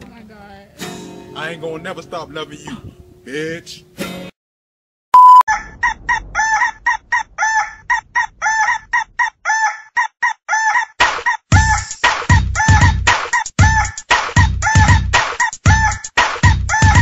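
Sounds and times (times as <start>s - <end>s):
short loud beep: 5.2s - 5.5s
electronic dance beat: 11.5s - 17.0s.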